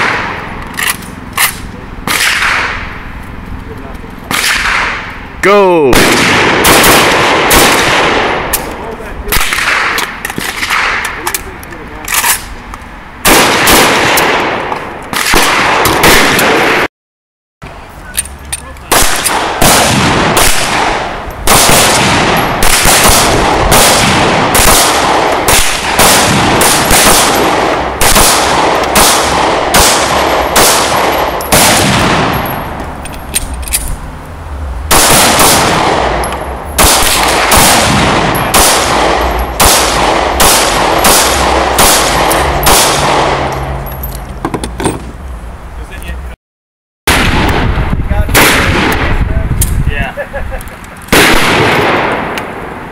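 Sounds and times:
pistol shots echoing: 1.4s - 3.0s, 4.3s - 5.1s, 5.9s - 11.2s, 13.2s - 16.9s, 18.9s - 32.7s, 34.9s - 43.7s, 48.3s - 49.2s, 51.1s - 52.9s.

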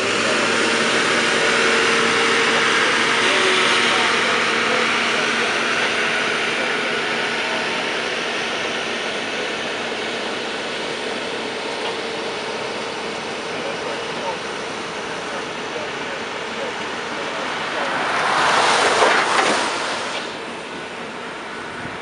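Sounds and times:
diesel engine running: 0.0s - 22.0s
wheels on rail: 13.0s - 22.0s.

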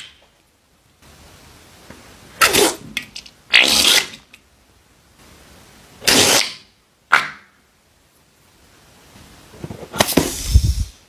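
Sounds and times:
slime and air sputtering: 2.4s - 4.3s, 6.0s - 6.6s, 9.9s - 11.0s.

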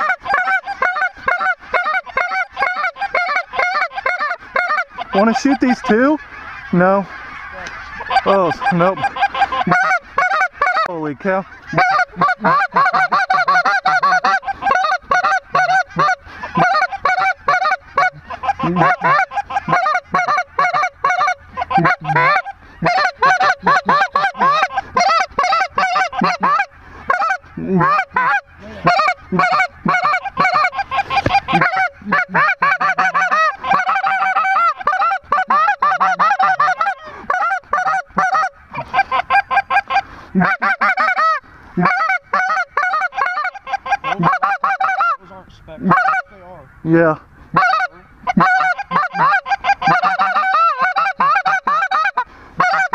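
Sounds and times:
geese honking: 0.0s - 52.9s
goose calls blown: 11.7s - 45.2s, 45.8s - 46.3s, 47.6s - 52.9s.

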